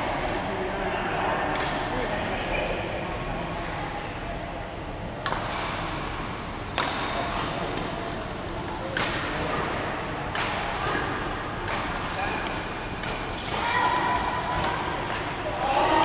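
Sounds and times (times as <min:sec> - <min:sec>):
racket striking shuttlecock: 0:06.8 - 0:07.4, 0:11.7 - 0:15.2.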